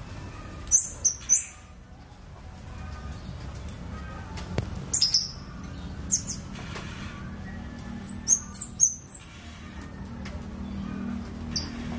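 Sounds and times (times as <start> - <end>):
small bird high chirps: 0.3 - 1.8, 4.9 - 6.6, 7.2 - 9.6.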